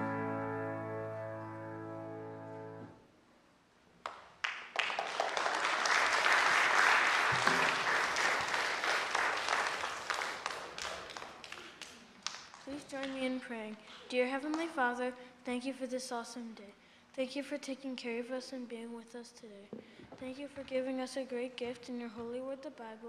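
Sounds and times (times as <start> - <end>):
held music chord: 0.0 - 3.0
audience applause: 4.4 - 12.8.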